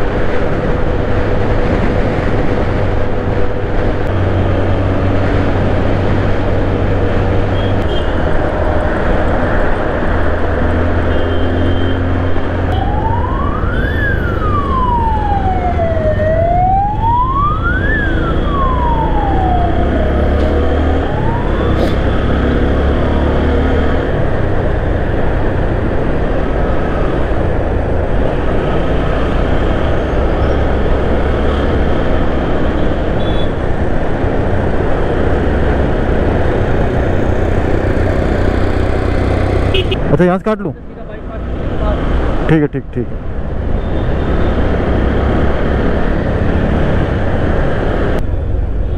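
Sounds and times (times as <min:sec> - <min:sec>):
wind: 0:00.0 - 0:48.9
siren wailing: 0:12.7 - 0:23.1.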